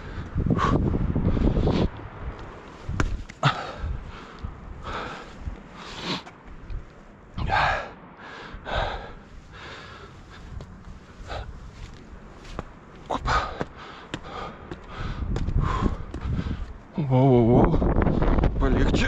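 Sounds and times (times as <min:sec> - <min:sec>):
man breathing hard: 0:00.0 - 0:02.2, 0:03.2 - 0:06.4, 0:07.4 - 0:16.9
wind rumble on microphone: 0:00.0 - 0:07.9, 0:08.6 - 0:19.0.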